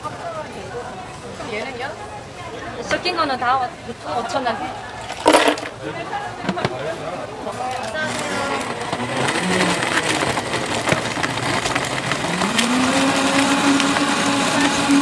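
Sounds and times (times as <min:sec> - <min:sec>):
ice clicking against blender jar: 0:07.9 - 0:15.0
blender motor: 0:08.0 - 0:15.0.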